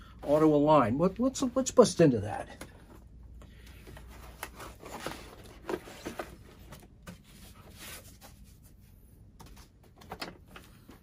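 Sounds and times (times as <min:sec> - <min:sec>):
cardboard box rustling and scraping: 0:04.0 - 0:08.2.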